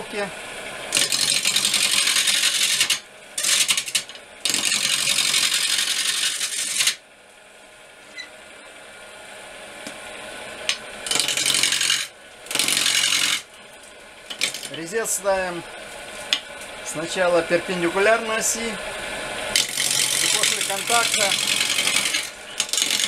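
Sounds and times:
lathe running quietly: 0:00.0 - 0:23.0
gouge cutting wood on lathe: 0:00.9 - 0:07.0, 0:10.7 - 0:13.5, 0:14.3 - 0:14.8, 0:19.5 - 0:23.0.

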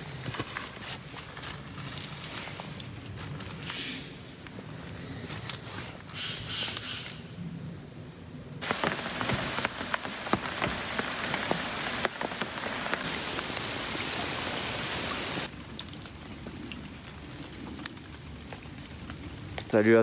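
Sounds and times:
rain falling on lake water: 0:08.6 - 0:20.0.

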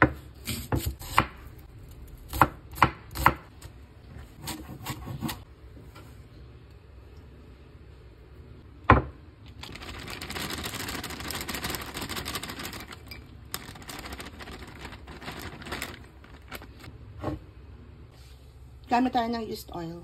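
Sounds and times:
frozen vegetables rattling into bowl: 0:09.6 - 0:16.9.

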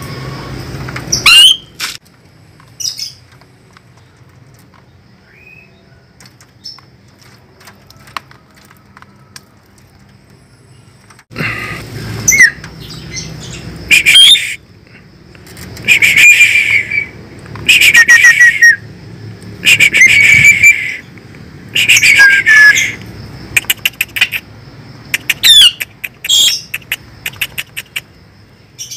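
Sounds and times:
starling harsh rasping squawks: 0:13.9 - 0:14.6
bird clicks and whistled glides: 0:21.8 - 0:24.5, 0:25.1 - 0:28.1.

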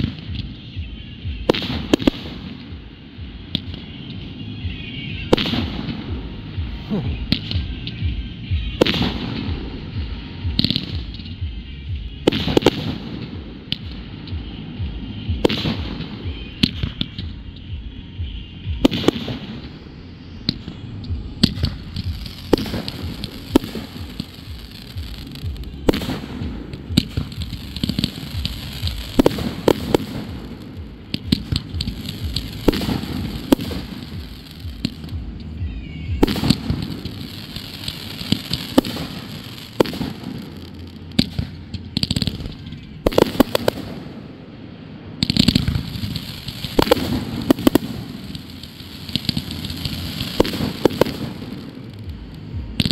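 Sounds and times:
fireworks bangs: 0:00.0 - 0:52.9
fireworks crackling: 0:00.0 - 0:52.9.

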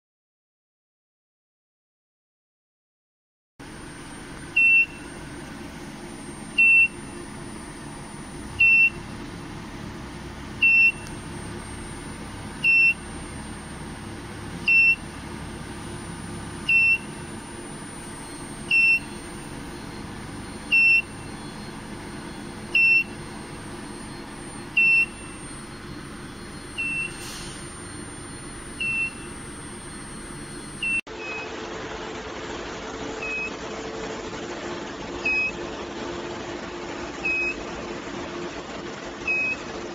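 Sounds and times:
heater unit humming: 0:03.6 - 0:39.9
short high beeps: 0:12.6 - 0:15.1, 0:15.8 - 0:31.5.

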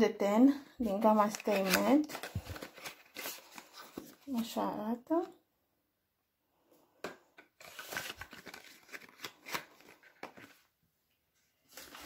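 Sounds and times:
packaging rustling and clicking: 0:01.2 - 0:04.3, 0:07.6 - 0:10.6.

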